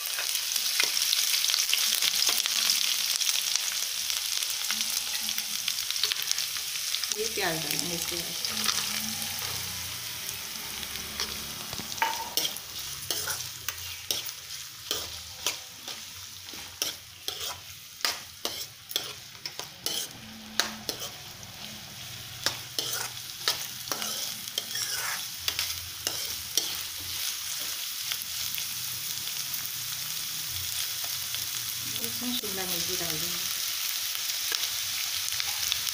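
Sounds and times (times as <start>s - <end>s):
onions sizzling in hot oil: 0.0s - 35.9s
steel spoon scraping a pan: 7.4s - 27.7s.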